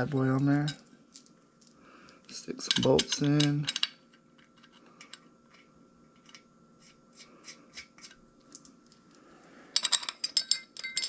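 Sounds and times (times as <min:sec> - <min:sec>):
metal parts clicking and rubbing: 0:00.4 - 0:09.1
small metal bolts clinking: 0:02.6 - 0:05.6, 0:09.8 - 0:11.0.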